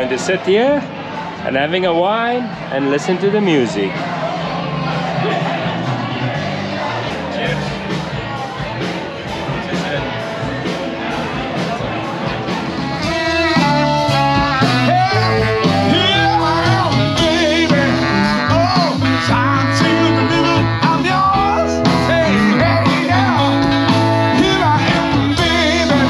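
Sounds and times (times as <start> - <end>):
band playing: 0.0 - 26.0
guitar: 0.0 - 26.0
person singing: 12.3 - 26.0.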